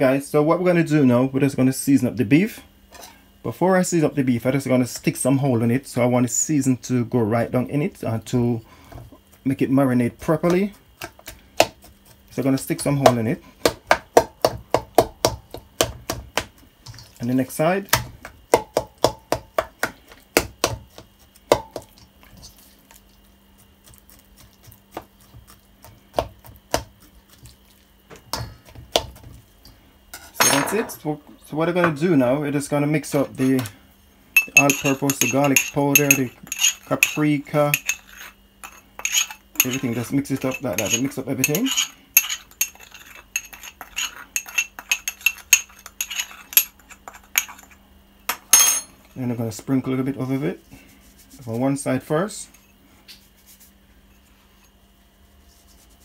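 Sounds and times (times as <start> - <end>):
knife tapping in steel bowl: 34.4 - 46.7
spoon clinking against glass jar: 34.4 - 47.8.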